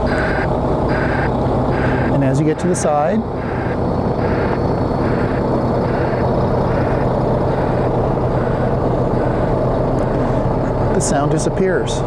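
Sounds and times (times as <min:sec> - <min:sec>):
white-noise reversing alarm: 0:00.0 - 0:11.0
diesel truck engine idling: 0:00.0 - 0:12.0.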